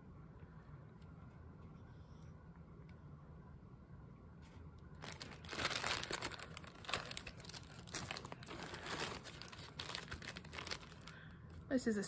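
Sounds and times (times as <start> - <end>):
plastic bags crinkling: 5.0 - 11.3.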